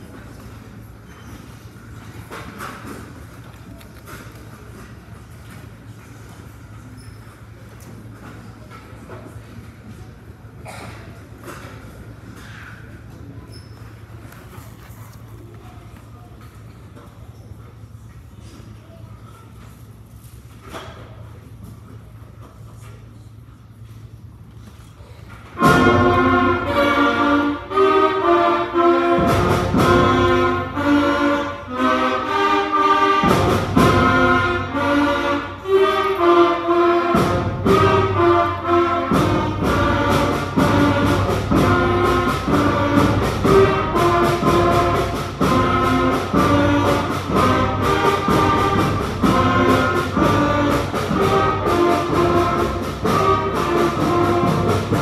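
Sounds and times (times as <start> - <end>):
concert band playing: 25.6 - 55.0.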